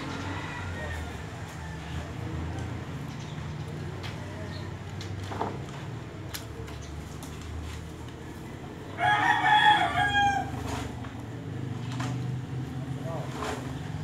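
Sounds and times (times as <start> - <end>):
rooster crowing: 0.0 - 2.2, 9.0 - 10.9.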